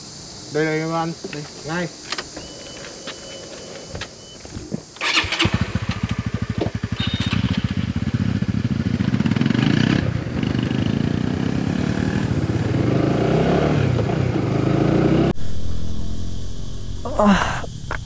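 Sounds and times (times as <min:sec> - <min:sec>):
motorcycle engine pulling away: 0:05.0 - 0:18.0.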